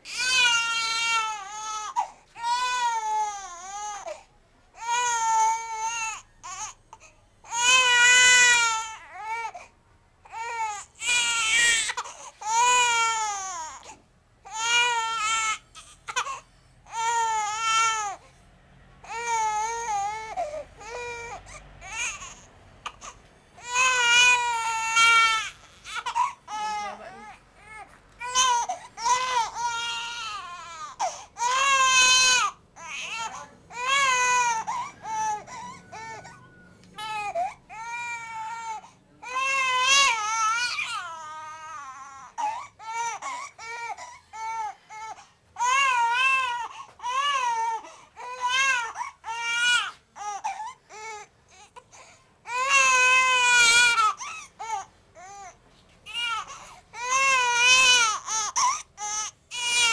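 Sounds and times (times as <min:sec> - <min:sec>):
baby crying: 0:00.0 - 0:04.2, 0:04.8 - 0:06.8, 0:07.5 - 0:09.6, 0:10.3 - 0:18.2, 0:19.0 - 0:59.9.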